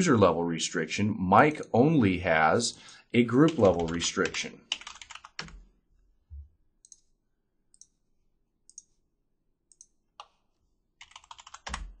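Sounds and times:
keyboard keystrokes: 0:11.0 - 0:12.0.

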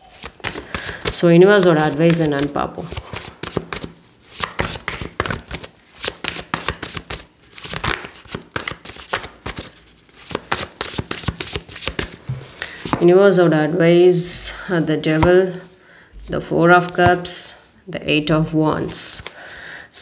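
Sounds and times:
cards being shuffled: 0:00.1 - 0:13.1.

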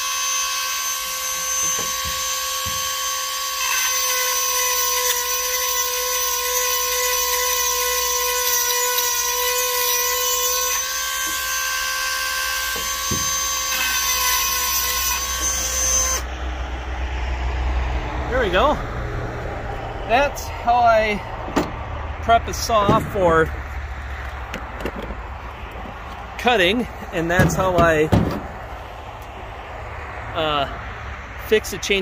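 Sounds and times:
rotary tool grinding whine: 0:00.0 - 0:16.4.

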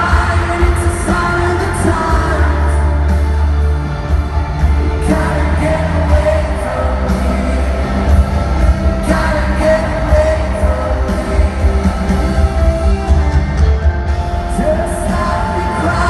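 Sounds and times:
live pop-rock band with singer: 0:00.0 - 0:16.0.

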